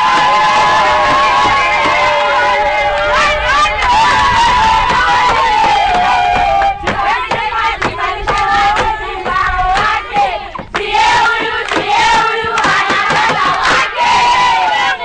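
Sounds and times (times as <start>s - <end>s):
group of people singing: 1.3s - 15.0s
hands clapping: 10.6s - 13.9s.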